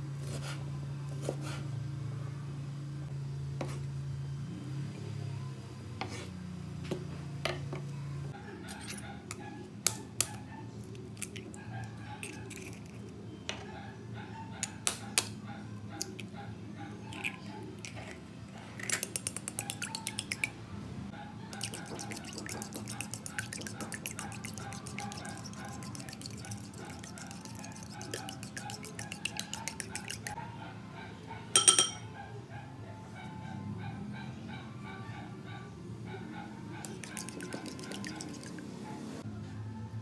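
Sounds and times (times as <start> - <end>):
spoon beating eggs in bowl: 8.7 - 11.6, 12.2 - 13.1, 17.1 - 20.6, 21.5 - 30.4, 36.8 - 38.7
spoon cracking eggshell: 9.9 - 11.6, 12.2 - 13.0, 18.8 - 20.5, 21.6 - 30.3, 36.8 - 38.6.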